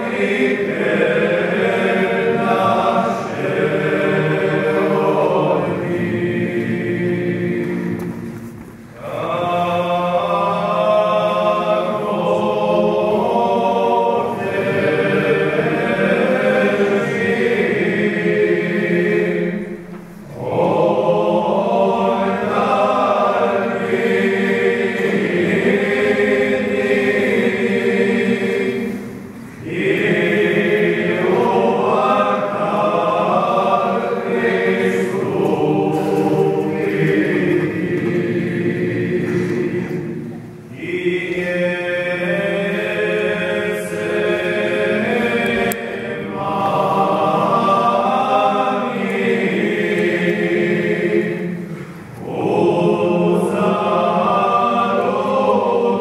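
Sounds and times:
group chanting: 0.0 - 8.3, 9.0 - 56.0.

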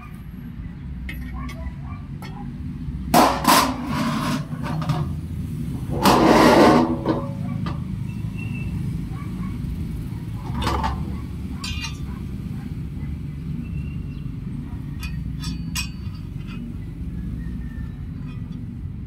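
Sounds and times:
metal bracket pieces clinking: 1.0 - 2.4, 10.4 - 12.3, 14.8 - 17.0, 18.1 - 18.8.

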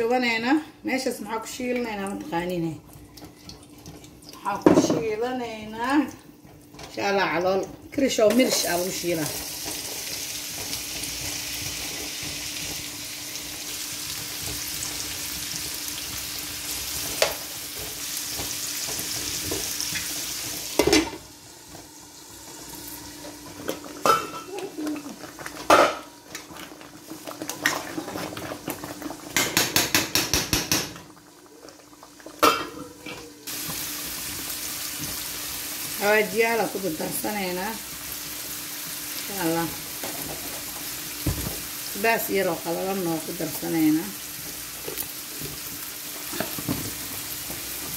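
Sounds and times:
onions sizzling in oil: 8.0 - 26.2, 33.4 - 47.9
pan and utensils knocking: 23.7 - 24.7, 29.3 - 31.0.

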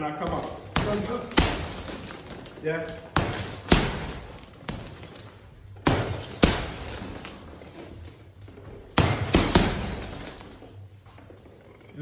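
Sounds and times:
boxing gloves punching heavy bag: 0.0 - 7.6, 8.8 - 10.7.

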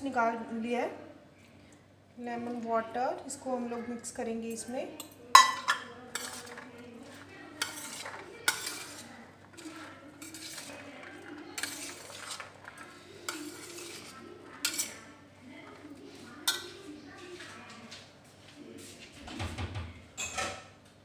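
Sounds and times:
metal spoon clinking on steel bowl: 5.0 - 6.7, 7.6 - 15.0, 16.4 - 16.8
salad rustling and squishing: 6.1 - 15.0.

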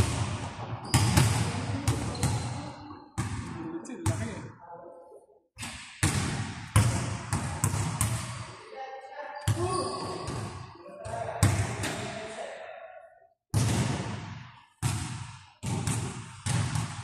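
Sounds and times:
basketball bouncing on gym floor: 0.0 - 2.6, 6.0 - 8.4, 9.5 - 12.0, 13.5 - 17.0
voices in a hall: 0.4 - 5.8, 8.2 - 13.4.

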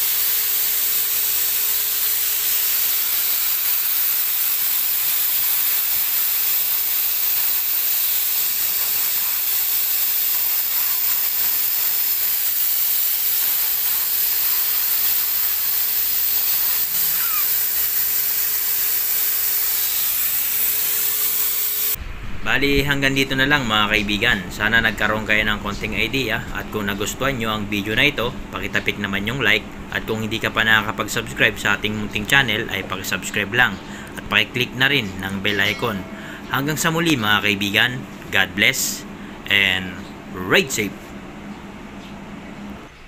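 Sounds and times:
spray gun hissing: 0.0 - 24.0
turbine whine: 0.0 - 40.9.

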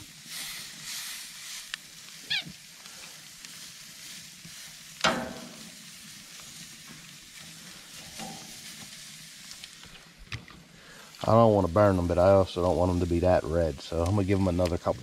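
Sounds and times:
meat sizzling on a grill: 0.0 - 15.0
sharp ringing clank: 5.0 - 5.6.

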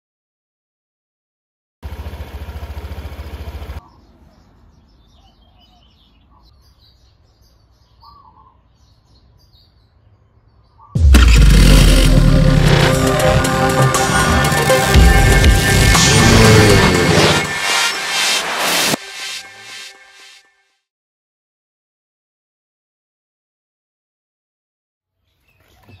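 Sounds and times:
scooter engine running: 1.8 - 3.9
birds chirping: 3.0 - 11.0, 25.2 - 26.0
loud music: 11.0 - 20.4.

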